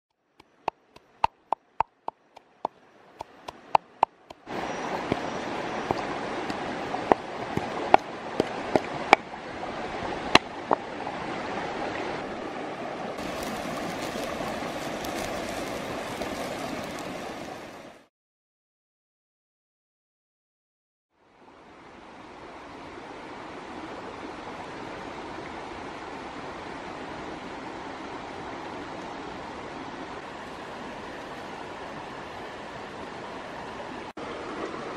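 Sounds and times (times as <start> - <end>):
stream rushing: 0.2 - 18.1, 21.2 - 34.9
squid sizzling on hot stone: 13.2 - 17.9.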